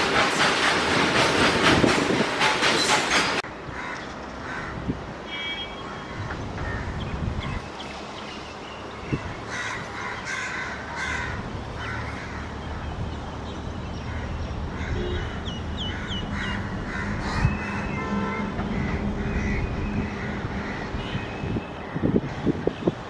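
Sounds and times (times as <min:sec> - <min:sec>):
freight train rumbling: 0:00.0 - 0:03.7, 0:11.4 - 0:23.0
crows cawing: 0:03.7 - 0:04.8, 0:09.5 - 0:12.6, 0:14.1 - 0:17.9.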